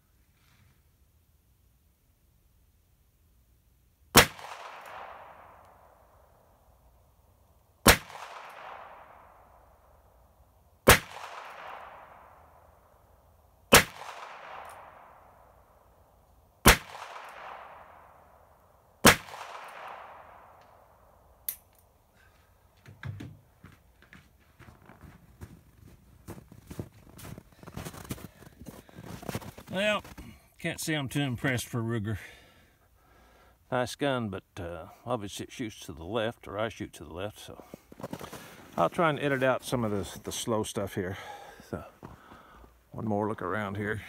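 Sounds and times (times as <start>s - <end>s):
revolver gunshots with echo: 4.2s - 6.0s, 7.8s - 9.7s, 10.8s - 12.7s, 13.7s - 15.6s, 16.6s - 18.4s, 19.0s - 20.9s.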